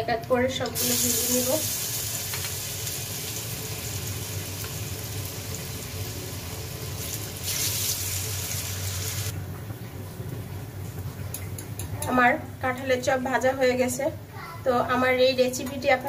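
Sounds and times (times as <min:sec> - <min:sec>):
food sizzling in hot oil: 0:00.7 - 0:09.4.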